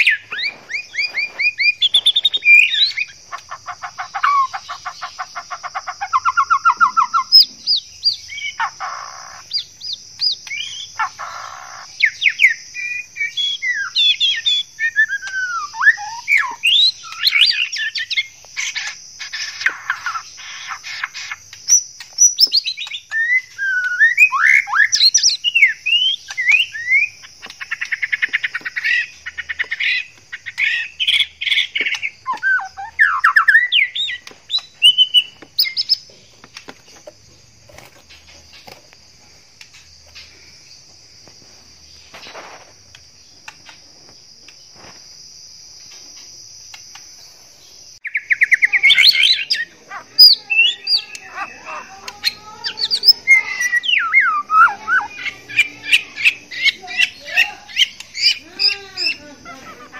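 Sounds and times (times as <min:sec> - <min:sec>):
bird song whistles and trills: 0:00.0 - 0:37.1, 0:47.8 - 0:59.9
steady high-pitched hiss: 0:00.0 - 0:59.9.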